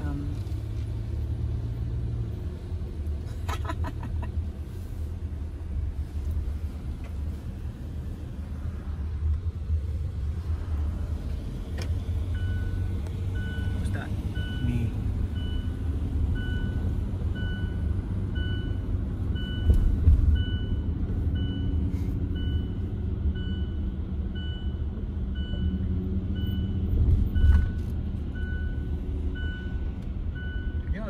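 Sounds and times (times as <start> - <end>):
car cabin road noise: 0.0 - 31.0.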